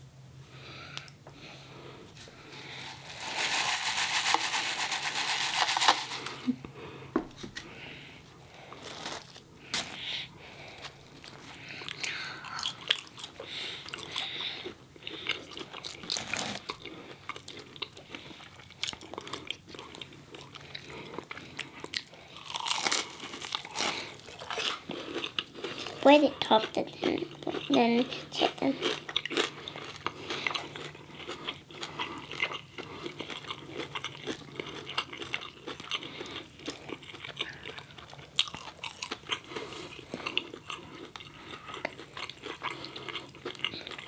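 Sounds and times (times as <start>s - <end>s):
crunchy chewing: 8.6s - 26.0s, 27.0s - 44.0s.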